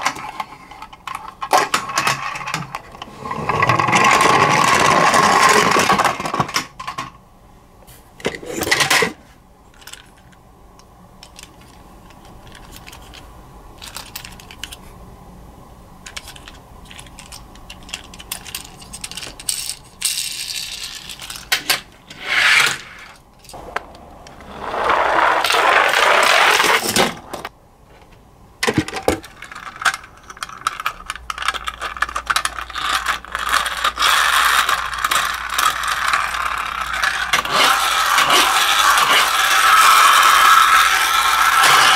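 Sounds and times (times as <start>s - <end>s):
plastic toys clattering: 0.0s - 7.2s, 8.2s - 10.4s, 11.2s - 14.9s, 16.0s - 21.9s, 22.8s - 41.9s
rushing noises: 23.6s - 27.5s.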